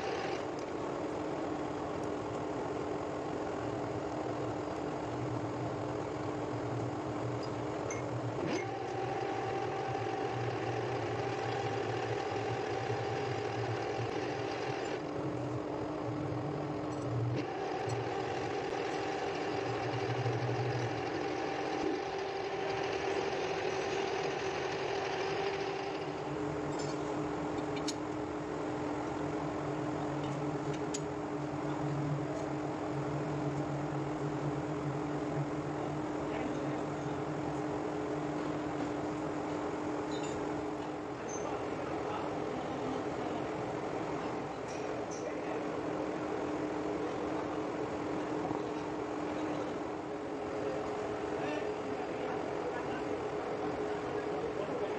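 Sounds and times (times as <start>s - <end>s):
lathe motor humming: 0.0s - 0.6s, 8.1s - 26.7s.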